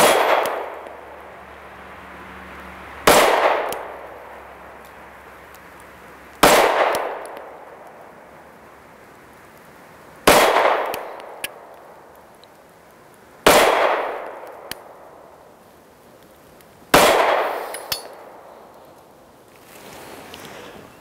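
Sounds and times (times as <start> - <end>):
pistol shots echoing: 0.0 - 0.9, 3.0 - 4.0, 6.4 - 7.6, 10.2 - 11.7, 13.4 - 14.9, 16.9 - 18.4.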